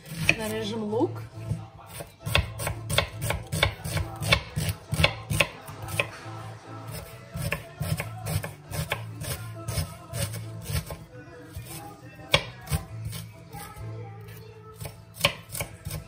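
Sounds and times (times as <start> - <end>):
knife chopping on wooden board: 0.0 - 0.5, 1.4 - 6.2, 6.9 - 11.0, 11.6 - 13.2, 14.8 - 16.0.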